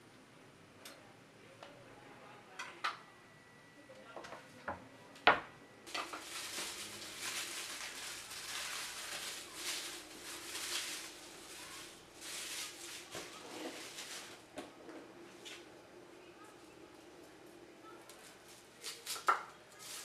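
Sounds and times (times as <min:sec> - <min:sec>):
plastic bag rustling: 0:05.9 - 0:14.5, 0:18.5 - 0:20.0.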